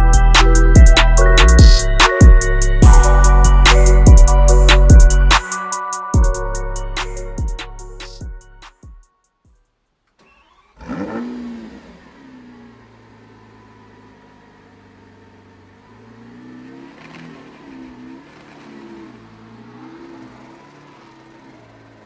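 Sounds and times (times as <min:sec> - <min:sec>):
car engine starting and idling: 0:00.0 - 0:05.5, 0:10.0 - 0:22.0
car engine revving: 0:10.2 - 0:22.0.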